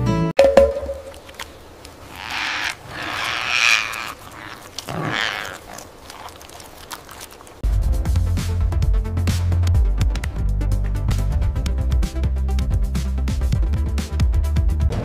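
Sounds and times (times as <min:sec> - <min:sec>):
parrots squawking: 0:02.0 - 0:06.3.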